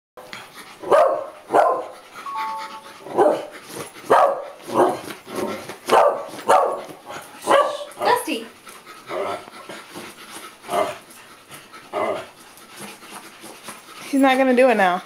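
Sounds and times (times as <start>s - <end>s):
small dog barking: 0.9s - 1.9s, 3.1s - 3.5s, 4.1s - 5.0s, 5.9s - 7.9s.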